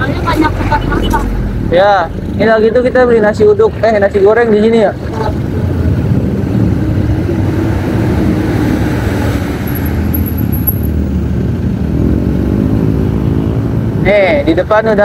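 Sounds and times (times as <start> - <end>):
motorcycle engine rumbling: 0.0 - 14.9
road noise: 0.0 - 15.0.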